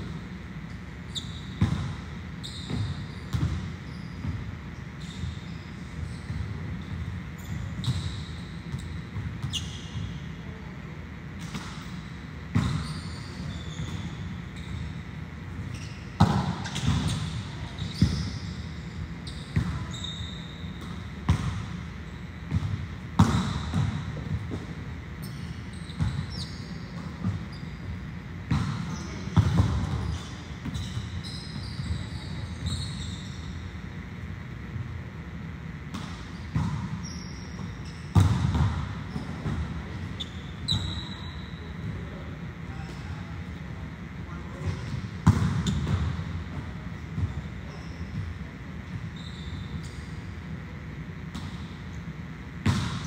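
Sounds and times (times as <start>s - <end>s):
short high squeaks: 1.1s - 1.6s, 2.4s - 4.2s, 5.0s - 6.5s, 12.7s - 15.0s, 15.7s - 20.9s, 30.0s - 33.6s, 40.2s - 41.6s, 49.1s - 50.2s.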